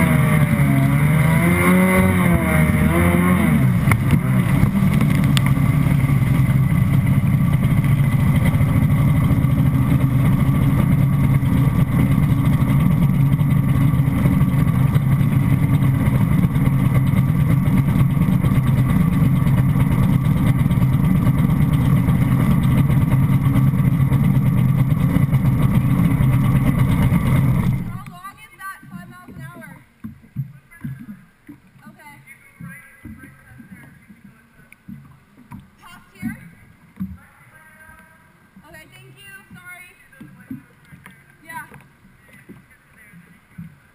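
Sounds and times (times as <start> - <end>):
jet ski engine running: 0.0 - 43.9.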